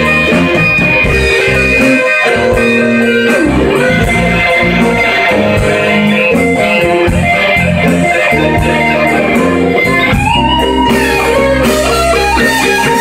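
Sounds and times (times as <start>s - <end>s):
electric blues band playing: 0.0s - 13.0s
guitar note bending upward: 0.0s - 13.0s.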